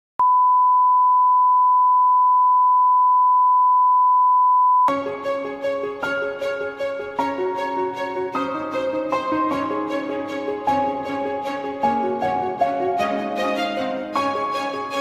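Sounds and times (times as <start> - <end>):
steady sine test tone: 0.2 - 4.9
intro music with repeated notes: 4.9 - 15.0.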